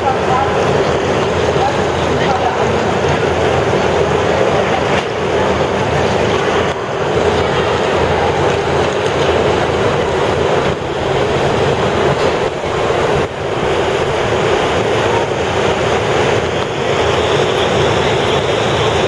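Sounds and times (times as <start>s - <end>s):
choppy water: 0.0s - 19.0s
large fans rushing: 0.0s - 19.0s.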